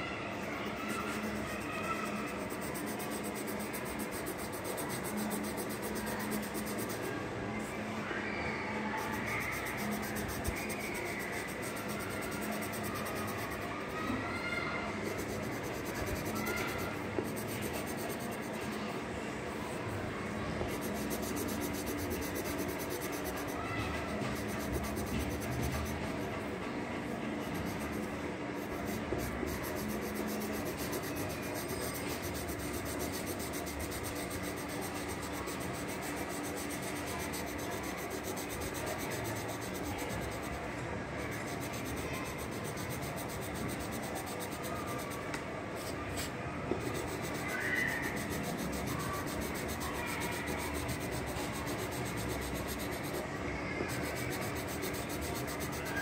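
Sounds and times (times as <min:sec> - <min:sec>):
pencil scratching on paper: 0:00.4 - 0:07.1, 0:09.0 - 0:13.9, 0:15.0 - 0:19.0, 0:20.6 - 0:26.5, 0:27.4 - 0:40.6, 0:41.3 - 0:56.0.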